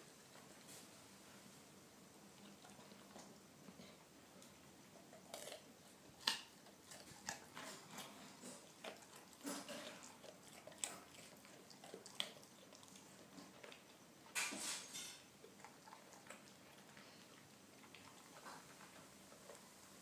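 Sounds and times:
dog crunching carrot: 4.4s - 14.5s, 15.3s - 19.7s.

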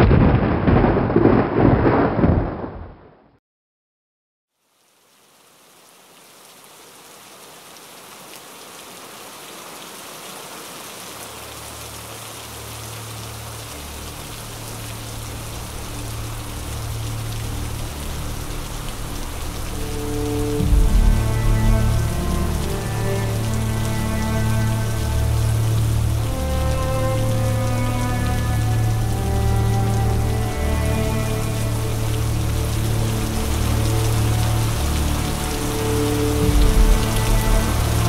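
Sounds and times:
steady rain: 4.5s - 38.0s
low music drone: 13.1s - 38.0s.

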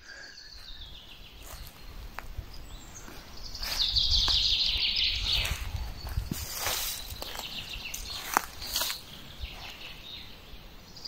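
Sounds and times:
faint bird calls: 0.0s - 11.0s
rustling noise: 5.3s - 9.9s.

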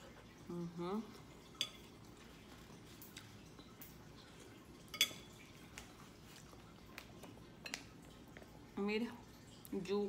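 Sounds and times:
metal spoon clinking on ceramic bowl: 4.9s - 5.3s.

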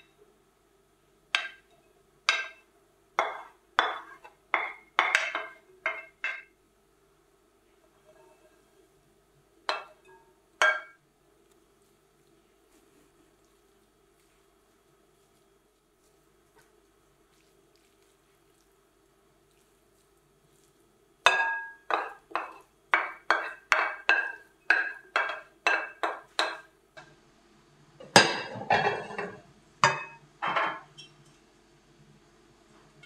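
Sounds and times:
wooden spoon knocking on glass plate: 3.2s - 6.5s, 9.7s - 11.0s.

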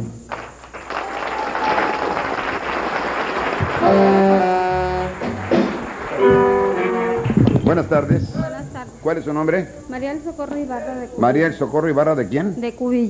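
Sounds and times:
audience applause: 0.0s - 8.2s
brass band playing: 3.4s - 7.5s
sustained horn notes: 3.6s - 9.2s.

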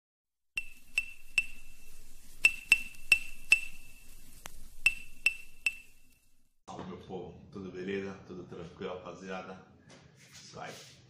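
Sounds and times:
high clinking pings: 0.6s - 4.2s, 4.9s - 6.1s.

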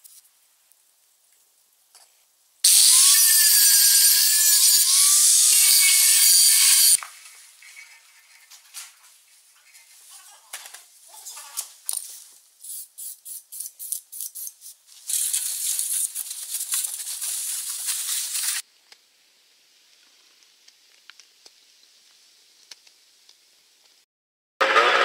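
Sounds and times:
steady hiss: 12.0s - 24.0s.

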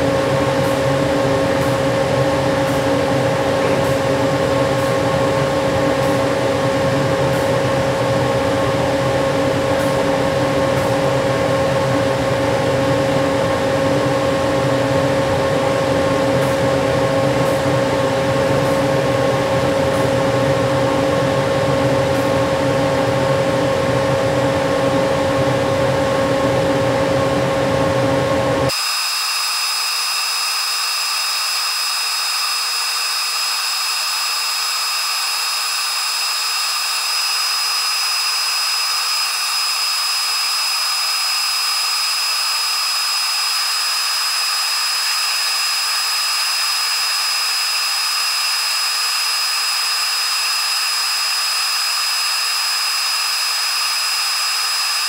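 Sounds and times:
high steady machine whine: 0.0s - 55.0s
laser cutter humming: 28.7s - 55.0s.

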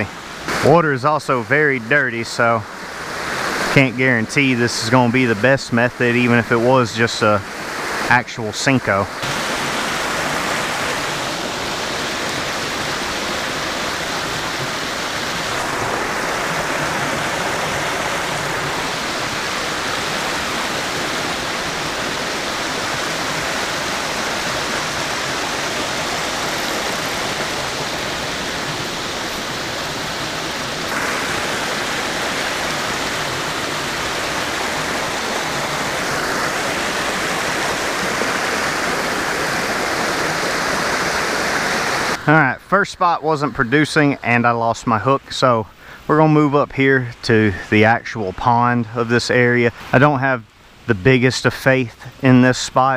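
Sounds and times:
creek water rushing over rocks: 0.0s - 52.9s.

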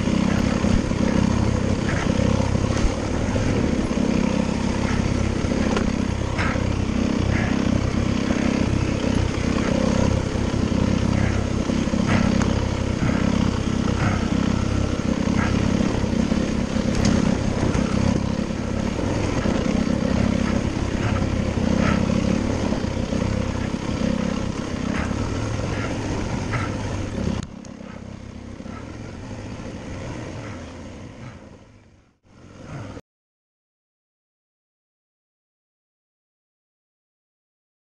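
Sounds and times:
dirt bike engine running: 0.0s - 33.0s.

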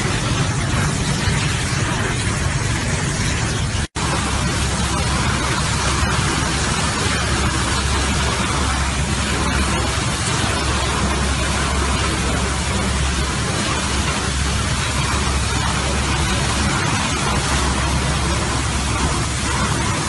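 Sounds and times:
high pressure water spray hissing: 0.0s - 20.0s.

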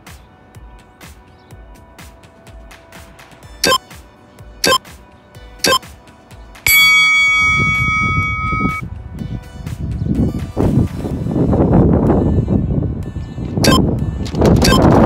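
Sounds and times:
timer beeps: 3.6s - 3.8s, 4.6s - 4.8s, 5.6s - 5.8s, 6.7s - 8.8s, 13.6s - 13.8s, 14.6s - 14.9s
long timer tone: 5.6s - 5.8s, 6.7s - 8.8s, 13.6s - 13.9s.

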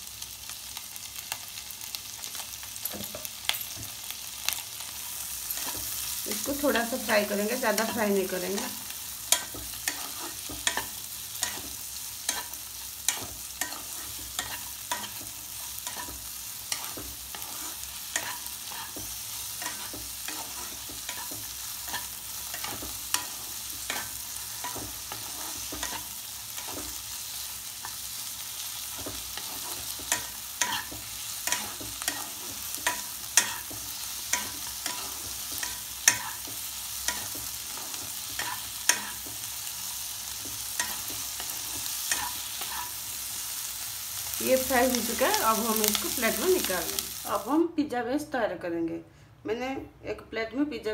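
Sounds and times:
vegetables sizzling in butter: 0.0s - 47.7s
wooden spatula scraping a pan: 9.4s - 11.7s, 13.1s - 27.0s.

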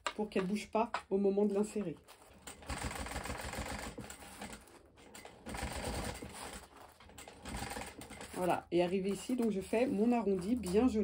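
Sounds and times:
sewing machine stitching: 2.2s - 10.8s.

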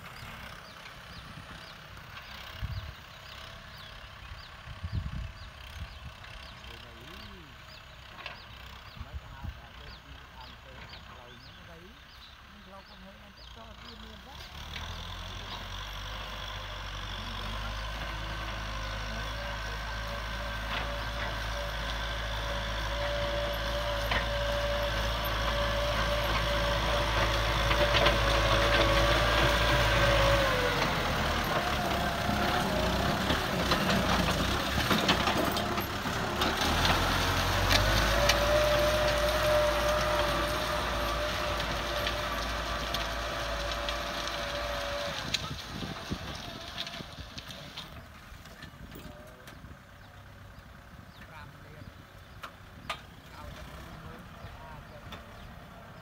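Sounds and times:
tractor diesel engine running: 0.0s - 56.0s
clanks and knocks from plough: 8.1s - 8.9s, 17.3s - 49.7s, 52.3s - 53.6s.

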